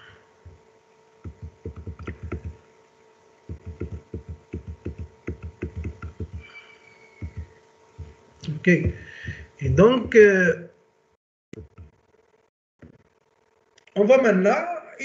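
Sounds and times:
electrical hum: 0.0 - 15.0
computer keyboard typing: 1.2 - 2.6, 3.5 - 6.5, 7.2 - 8.1.

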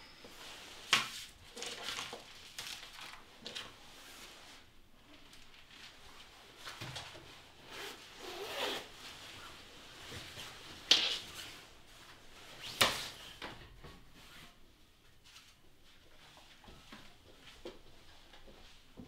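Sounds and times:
padded coat rustling: 7.4 - 12.7.

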